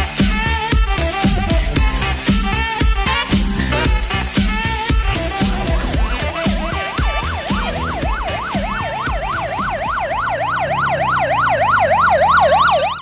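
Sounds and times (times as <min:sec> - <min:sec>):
upbeat music: 0:00.0 - 0:13.0
siren yelping: 0:05.0 - 0:13.0.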